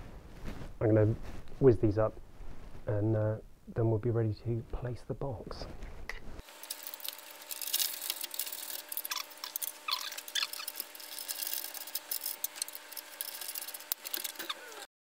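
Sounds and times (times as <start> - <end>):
ratchet clicking rapidly: 6.5 - 14.6.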